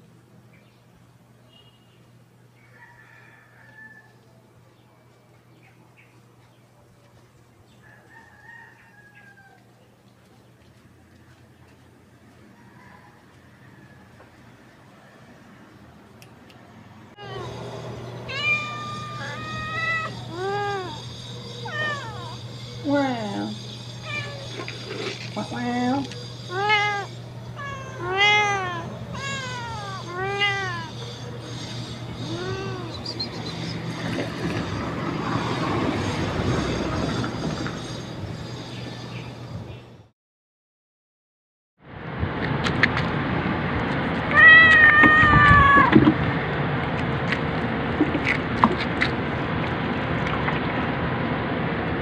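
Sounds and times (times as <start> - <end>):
steady low hum: 17.0 - 39.8
cats meowing: 17.2 - 22.5, 24.0 - 24.6, 26.5 - 31.2, 32.2 - 33.7, 44.3 - 46.0.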